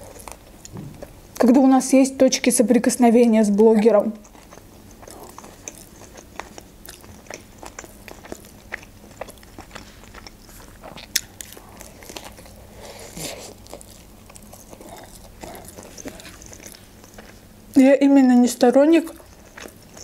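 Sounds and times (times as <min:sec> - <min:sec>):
wet chewing: 0:00.0 - 0:01.5, 0:03.5 - 0:20.0
biting into wrap: 0:04.2 - 0:17.5.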